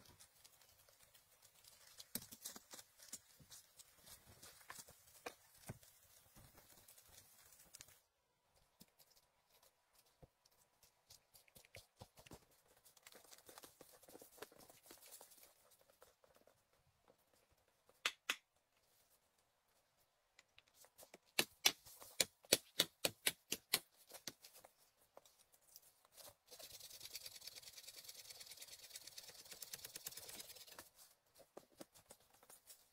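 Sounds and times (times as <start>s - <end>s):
fast rasping: 26.5s - 31.0s.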